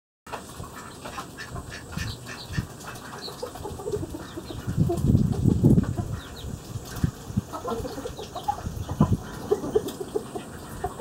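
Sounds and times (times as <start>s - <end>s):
farmyard birds calling: 0.3s - 11.0s.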